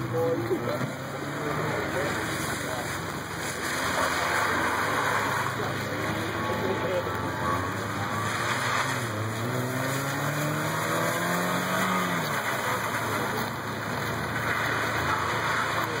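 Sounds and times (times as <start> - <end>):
car engine revving: 0.0 - 16.0
tyres hissing on wet tarmac: 1.2 - 7.1.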